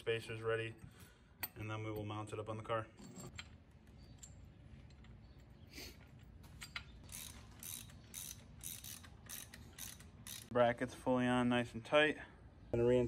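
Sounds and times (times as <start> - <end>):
ratchet wrench clicking: 6.6 - 10.5.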